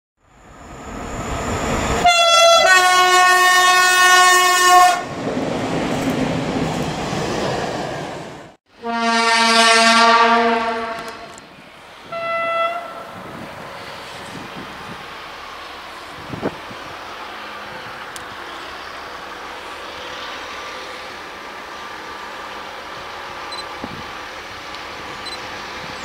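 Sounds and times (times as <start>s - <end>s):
train rumble: 0.3s - 8.6s, 10.0s - 26.0s
locomotive horn blasts: 2.0s - 5.1s, 8.8s - 11.4s, 12.0s - 13.1s.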